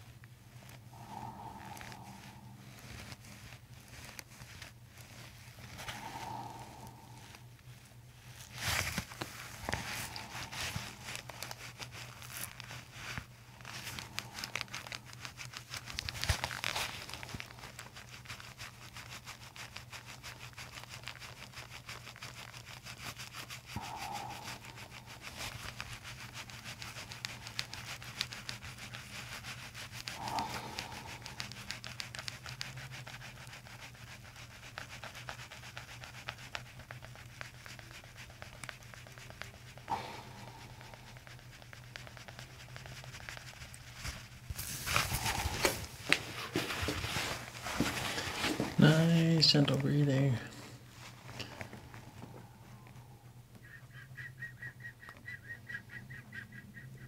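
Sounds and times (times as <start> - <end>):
fingers rustling through hair: 0.0 - 54.0.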